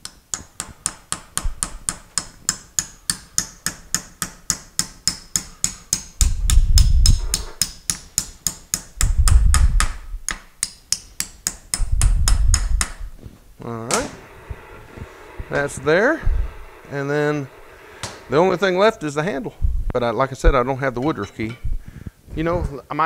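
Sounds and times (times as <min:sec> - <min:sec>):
hammer tapping on steel: 0:00.0 - 0:13.0
loud low rumble: 0:14.1 - 0:18.5.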